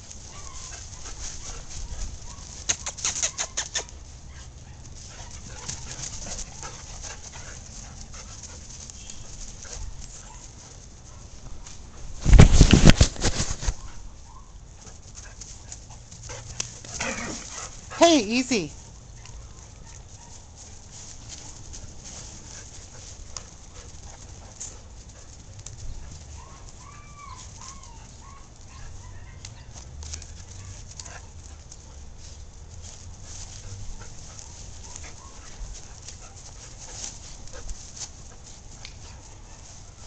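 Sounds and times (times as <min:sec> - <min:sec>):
dogs scuffling on grass: 0:00.0 - 0:40.0
dog whining: 0:26.4 - 0:28.4.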